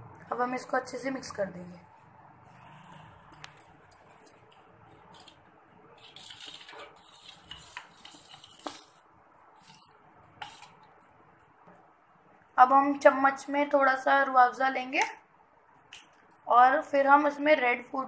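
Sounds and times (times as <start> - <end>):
liquid swishing in a pot: 5.9 - 10.8.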